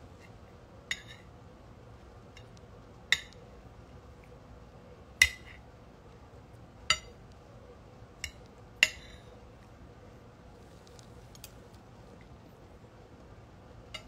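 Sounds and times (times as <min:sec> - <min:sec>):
cutlery clinking against a dish: 0:00.9 - 0:01.3, 0:08.2 - 0:09.3.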